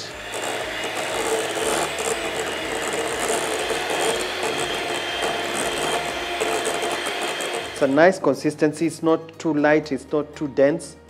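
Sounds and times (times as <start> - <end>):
electric hand mixer whirring: 0.0 - 8.4.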